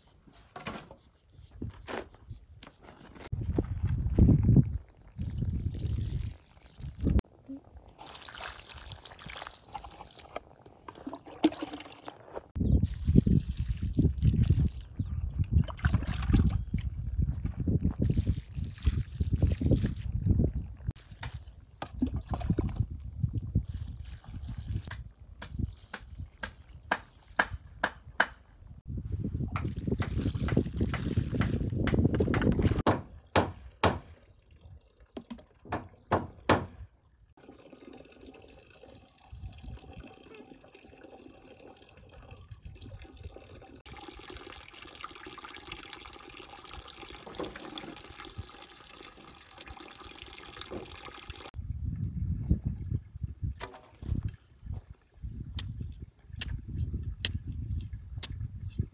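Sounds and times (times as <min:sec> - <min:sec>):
wind rumble on microphone: 0:03.3 - 0:07.2, 0:12.6 - 0:21.0, 0:21.9 - 0:27.8, 0:28.6 - 0:32.9, 0:39.3 - 0:40.1, 0:51.6 - 0:58.9
water trickling onto soil: 0:04.4 - 0:12.2, 0:12.8 - 0:20.3, 0:20.9 - 0:27.3, 0:29.6 - 0:31.8, 0:40.6 - 0:51.6.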